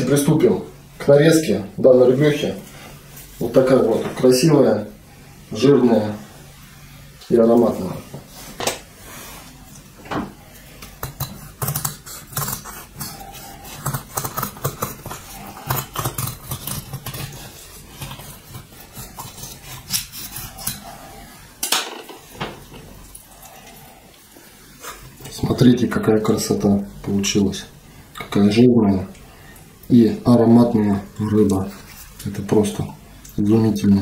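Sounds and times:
knife scraping on cutting board: 0:11.0 - 0:21.3.

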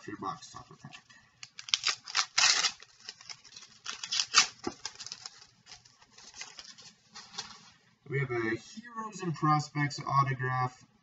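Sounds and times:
wrapper tearing and crinkling: 0:01.4 - 0:07.8.

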